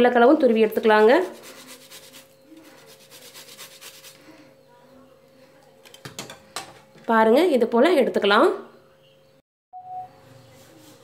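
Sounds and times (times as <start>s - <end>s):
potato rasping on grater: 1.0s - 4.2s.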